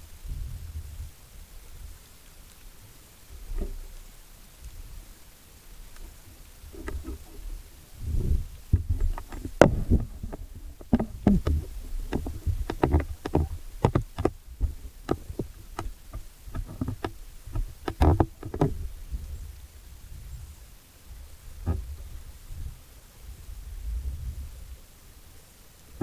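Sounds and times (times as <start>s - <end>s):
underwater rumble of moving water: 0.0s - 26.0s
underwater clicks and knocks: 3.4s - 4.0s, 5.9s - 7.5s, 8.1s - 18.9s, 21.6s - 22.1s.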